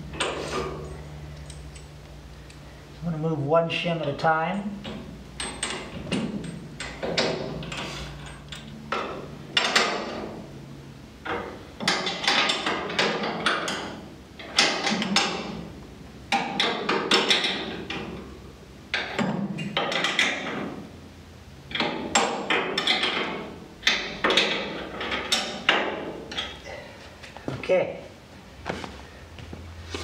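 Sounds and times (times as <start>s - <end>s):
metallic clicking and clanking: 4.6s - 10.4s, 11.2s - 15.7s, 16.3s - 20.8s, 21.7s - 26.6s.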